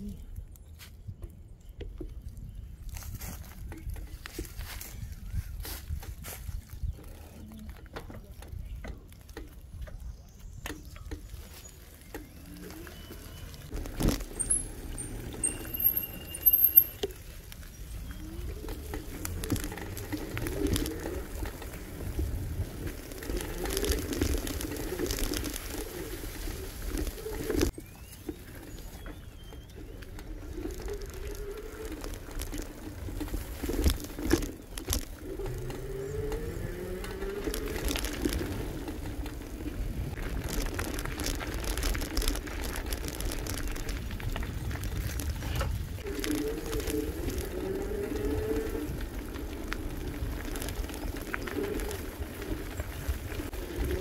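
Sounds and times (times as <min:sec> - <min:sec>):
tyres rumbling on trail: 0:00.0 - 0:54.0
wind on microphone: 0:02.0 - 0:08.9.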